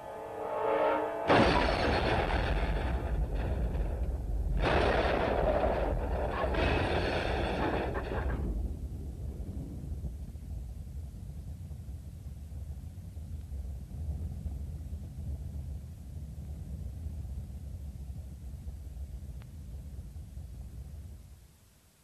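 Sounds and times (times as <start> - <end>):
low rumble: 0.0 - 12.3
loud explosion blasts: 1.2 - 10.1.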